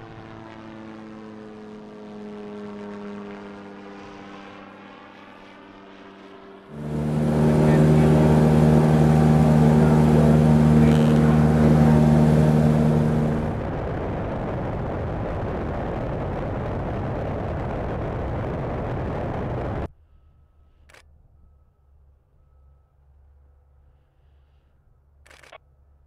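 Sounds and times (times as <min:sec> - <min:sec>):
light aircraft propeller drone: 0:00.0 - 0:19.9
propeller engine droning: 0:00.0 - 0:19.9.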